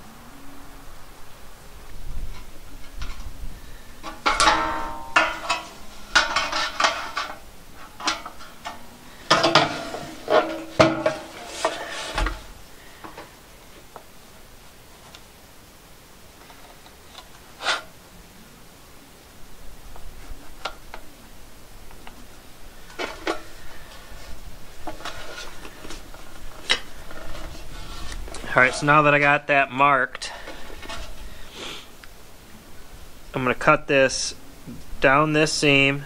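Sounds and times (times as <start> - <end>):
steel trim clanking and rattling: 4.0 - 12.5.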